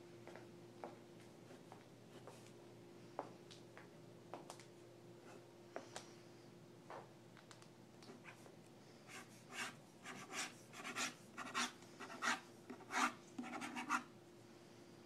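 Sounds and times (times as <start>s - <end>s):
pencil sketching on paper: 9.1s - 14.0s.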